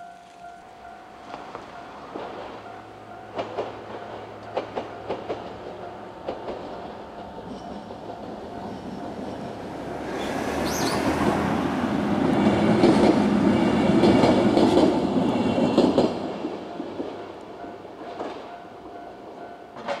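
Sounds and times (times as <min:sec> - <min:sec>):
level-crossing alarm ringing: 0:00.0 - 0:09.6
train rumble and wheel clatter: 0:00.0 - 0:20.0.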